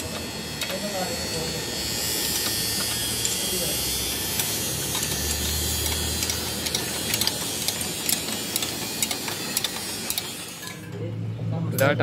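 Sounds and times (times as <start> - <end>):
metallic tool clicks and taps: 4.4 - 10.8.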